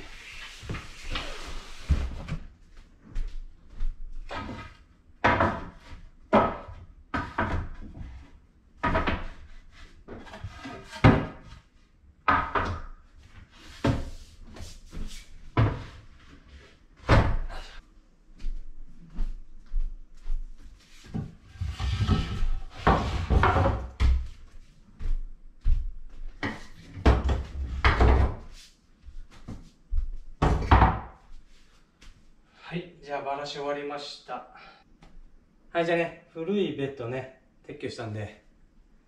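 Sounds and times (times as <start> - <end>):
bed frame parts knocking and thudding: 3.7 - 11.6, 12.2 - 14.6, 21.1 - 24.4, 30.4 - 31.2.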